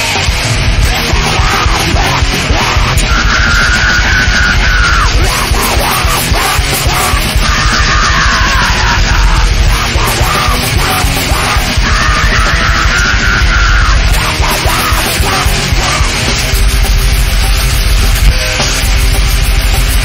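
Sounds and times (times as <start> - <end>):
metal band playing live: 0.0 - 20.0
screamed vocal: 0.8 - 16.5.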